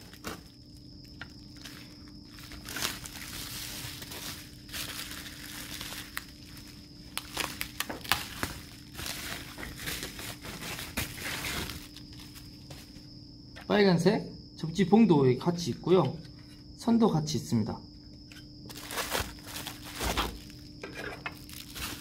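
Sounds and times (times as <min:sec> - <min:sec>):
bubble wrap crinkling: 0:00.0 - 0:13.0, 0:18.7 - 0:20.7, 0:21.4 - 0:22.0.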